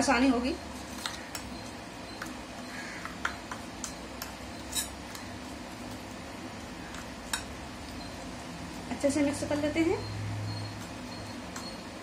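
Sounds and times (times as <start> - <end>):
spoon scraping steel bowl: 3.8 - 5.3.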